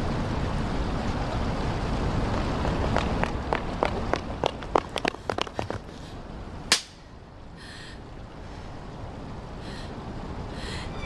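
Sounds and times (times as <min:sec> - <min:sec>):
quick footsteps on paving: 0:02.2 - 0:06.1
sharp crack: 0:06.7 - 0:07.0.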